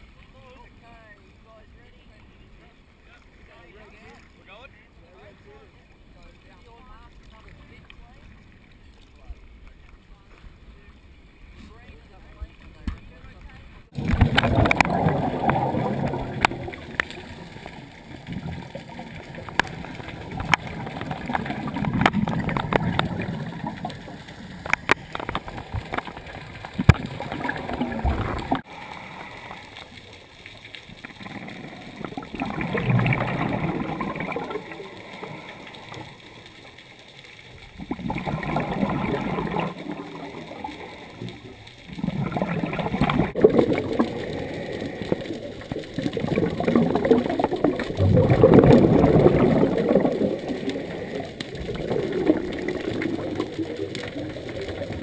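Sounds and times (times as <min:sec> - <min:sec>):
regulator exhaust bubbles underwater: 0:13.8 - 0:30.0, 0:30.8 - 0:36.8, 0:37.6 - 0:55.0.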